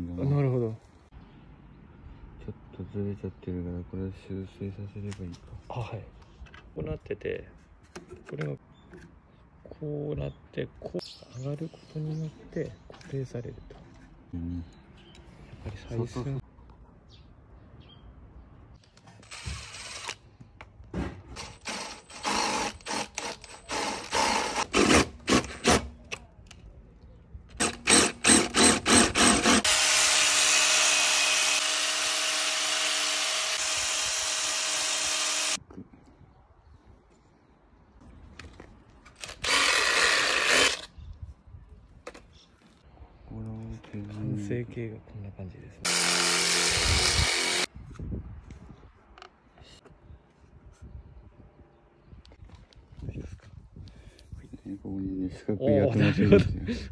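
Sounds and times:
power tool bursts: 0:19.2 - 0:20.2, 0:21.4 - 0:25.9, 0:27.5 - 0:35.6, 0:39.2 - 0:40.9, 0:45.9 - 0:47.7
angle grinder grinding steel: 0:27.5 - 0:35.6, 0:45.9 - 0:47.7.

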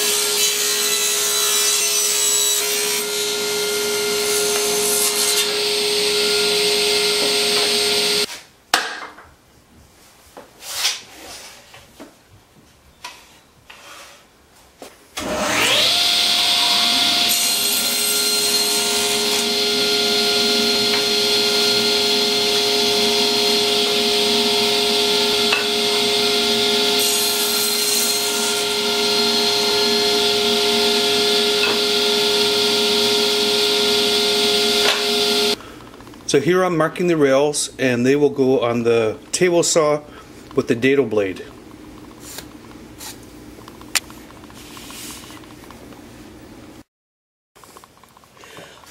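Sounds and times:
saw blade cutting wood: 0:00.0 - 0:08.3, 0:15.2 - 0:35.6
table saw whine: 0:00.0 - 0:08.3, 0:15.2 - 0:35.6.

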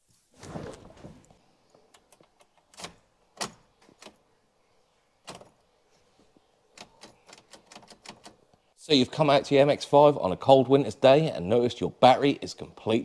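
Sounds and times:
rustling thump: 0:00.0 - 0:01.4.

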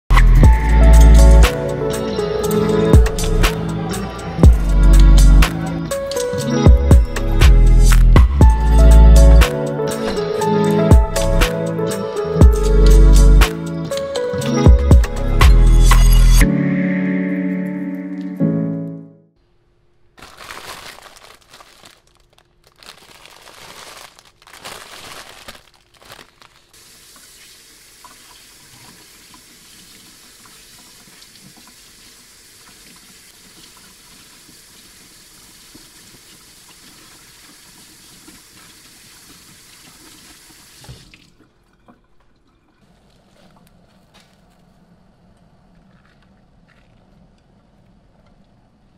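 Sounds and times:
tap water running into sink: 0:26.8 - 0:42.7.

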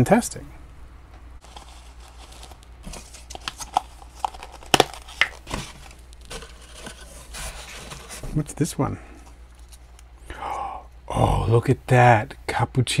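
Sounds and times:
packing paper crinkling: 0:01.4 - 0:10.0.

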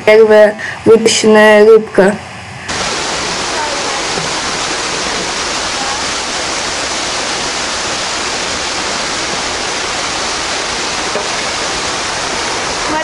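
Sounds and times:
running water rushing: 0:02.7 - 0:13.0.

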